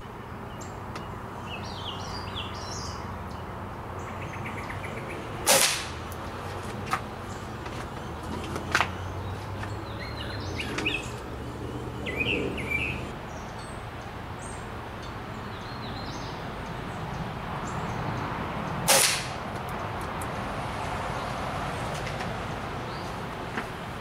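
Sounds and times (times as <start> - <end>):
birds chirping: 0.0 - 19.0, 19.6 - 24.0
air rifle shot: 5.4 - 6.0, 18.9 - 19.4.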